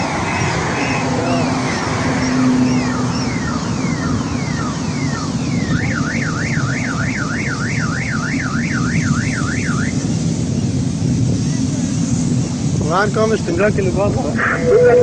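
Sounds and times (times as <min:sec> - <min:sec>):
car alarm whooping and warbling: 0:00.0 - 0:10.0, 0:14.4 - 0:15.0.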